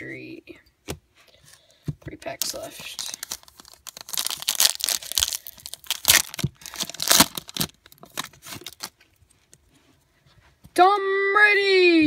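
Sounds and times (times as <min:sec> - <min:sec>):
foil wrapper tearing and crinkling: 0:02.4 - 0:09.0.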